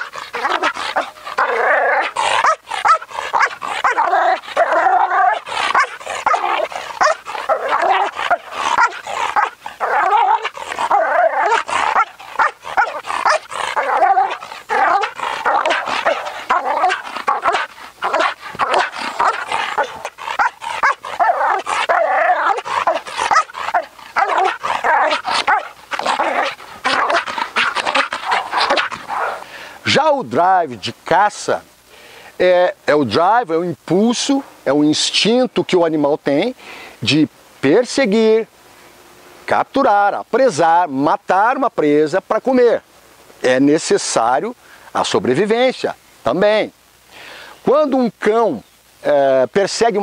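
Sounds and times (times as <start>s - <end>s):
dog barking rapidly: 0.0s - 29.4s.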